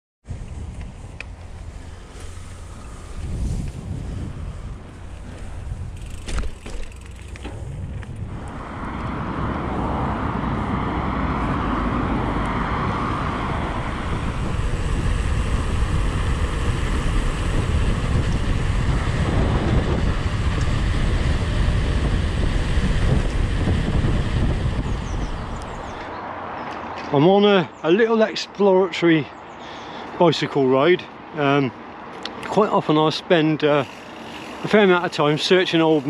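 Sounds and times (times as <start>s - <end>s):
wind buffeting microphone: 0.2s - 26.3s
bicycle tyre noise on road: 0.2s - 27.1s, 31.8s - 36.0s.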